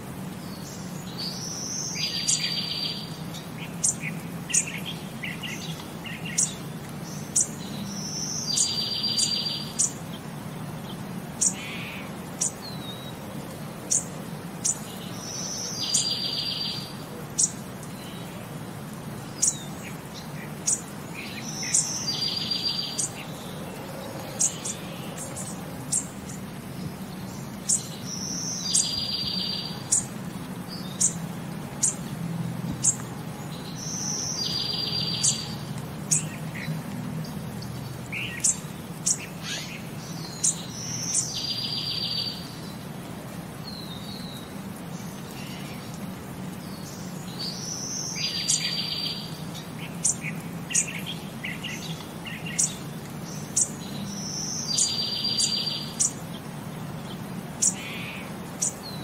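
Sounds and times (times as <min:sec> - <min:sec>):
bird chirps: 0:53.4 - 0:56.2.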